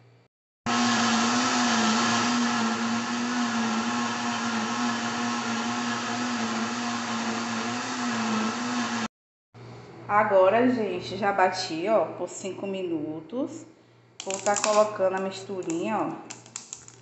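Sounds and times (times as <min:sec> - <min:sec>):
blender motor whirring: 0:00.7 - 0:09.1.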